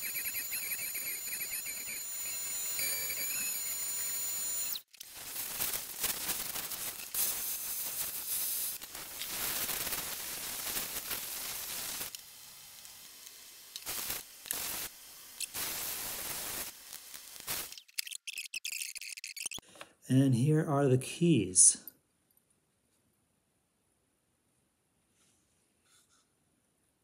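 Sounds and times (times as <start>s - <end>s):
vacuum cleaner running: 0.0s - 7.8s.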